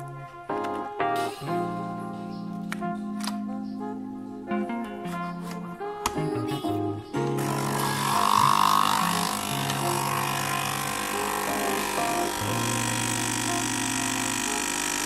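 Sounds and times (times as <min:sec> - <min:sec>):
quiet background music: 0:00.0 - 0:15.0
coffee machine pump buzzing: 0:07.4 - 0:15.0.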